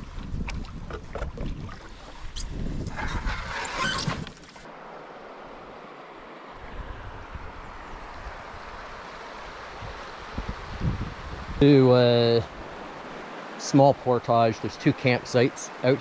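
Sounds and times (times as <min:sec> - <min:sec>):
wind buffeting microphone: 0:00.0 - 0:04.4, 0:06.6 - 0:11.7
flowing river water: 0:00.0 - 0:16.0.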